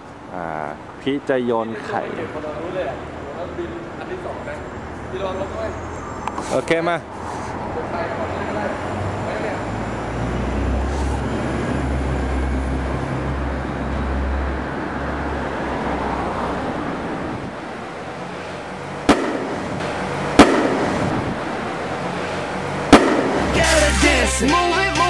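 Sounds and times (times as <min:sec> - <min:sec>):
traffic noise: 0:00.0 - 0:25.0
box hitting pavement: 0:19.1 - 0:21.0, 0:22.9 - 0:23.5.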